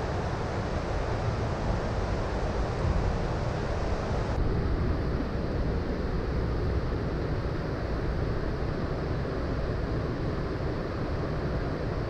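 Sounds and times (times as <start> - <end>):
wind buffeting microphone: 0.0 - 6.9.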